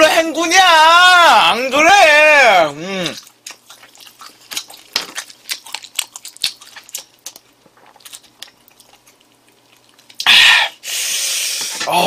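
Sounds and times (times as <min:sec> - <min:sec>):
close chewing with mouth clicks: 0:02.8 - 0:10.8.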